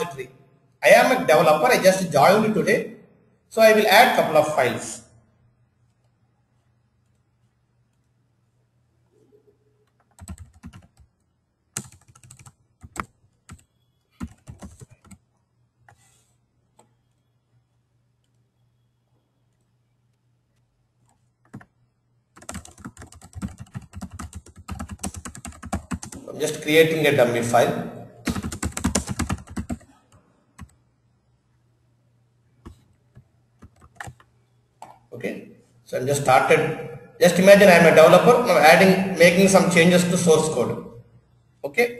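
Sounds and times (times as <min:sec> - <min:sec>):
computer keyboard typing: 0:09.8 - 0:16.0, 0:21.0 - 0:21.7, 0:22.3 - 0:26.3, 0:28.2 - 0:30.8, 0:32.6 - 0:34.9.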